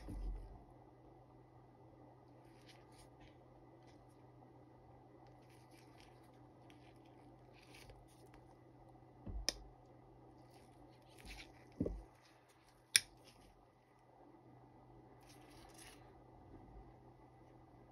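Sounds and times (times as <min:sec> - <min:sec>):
gloved hands rustling and scratching: 0:02.3 - 0:04.3, 0:05.3 - 0:08.6, 0:10.4 - 0:13.7, 0:15.2 - 0:16.2.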